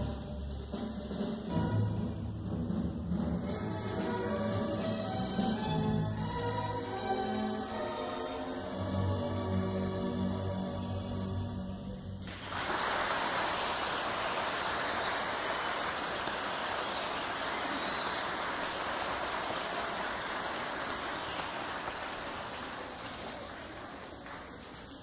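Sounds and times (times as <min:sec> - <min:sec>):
audience applause: 0:12.2 - 0:25.0.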